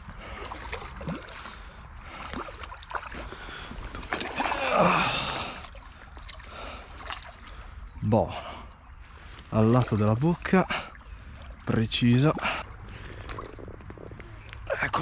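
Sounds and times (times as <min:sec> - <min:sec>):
fish thrashing and splashing: 0:00.2 - 0:07.6, 0:12.3 - 0:14.1.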